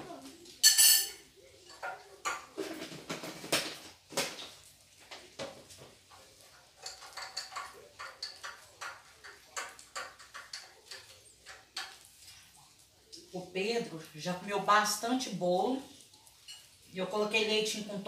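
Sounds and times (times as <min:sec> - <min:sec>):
forks clinking on ceramic plates: 0:00.6 - 0:02.6, 0:06.8 - 0:12.4, 0:16.4 - 0:16.8.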